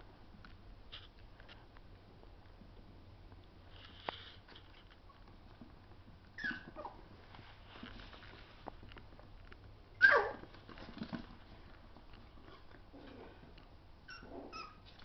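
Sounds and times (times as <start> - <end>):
puppy squeaking: 6.4 - 7.0, 10.0 - 10.4, 14.0 - 14.9
puppy yelping: 6.4 - 7.0, 10.0 - 10.5, 14.0 - 14.9.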